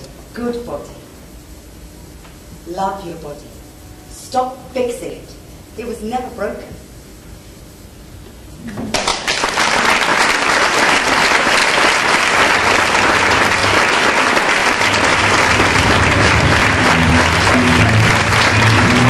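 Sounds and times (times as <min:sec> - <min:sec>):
audience applauding: 0:08.9 - 0:19.0.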